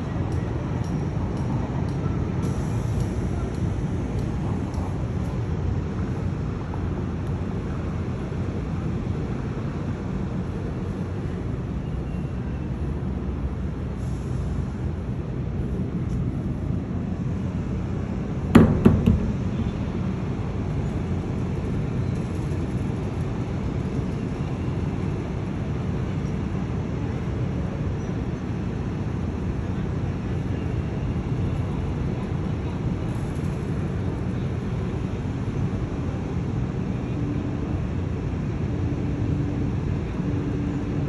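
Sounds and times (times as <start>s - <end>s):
low ship rumble: 0.0s - 25.8s
sharp knocks: 18.5s - 19.9s.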